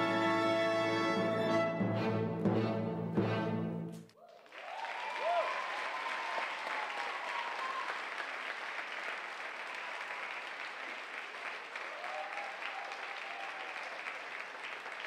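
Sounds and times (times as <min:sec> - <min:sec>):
audience applauding: 0:04.2 - 0:15.0.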